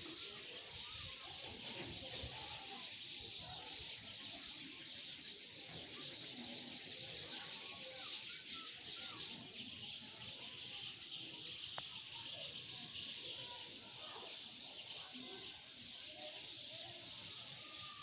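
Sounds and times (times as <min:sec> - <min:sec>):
birds chirping chorus: 0:00.0 - 0:18.0.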